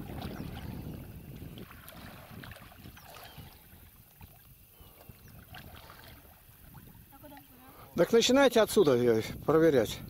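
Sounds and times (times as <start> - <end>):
paddles splashing in water: 0.0 - 8.6
wind rumble on microphone: 0.0 - 10.0.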